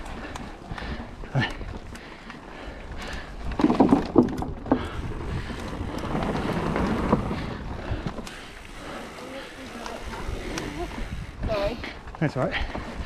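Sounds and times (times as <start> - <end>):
bike tyres rolling rumble: 0.0 - 13.0
bike tyres knocking on wooden planks: 3.0 - 8.8
wind on microphone: 4.5 - 8.2, 10.0 - 11.9.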